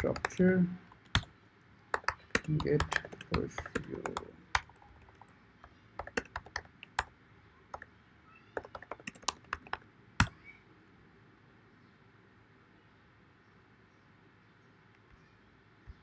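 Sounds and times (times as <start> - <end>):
computer keyboard keys clicking: 0.0 - 1.3, 1.9 - 7.1, 8.6 - 10.4.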